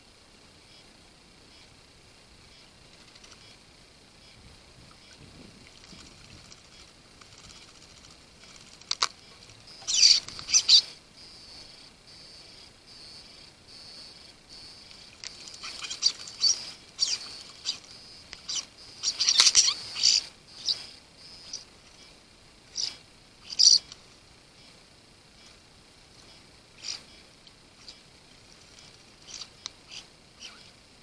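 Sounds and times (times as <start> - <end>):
starlings calling in harsh bursts: 5.8 - 24.0, 25.4 - 28.1, 28.7 - 30.8.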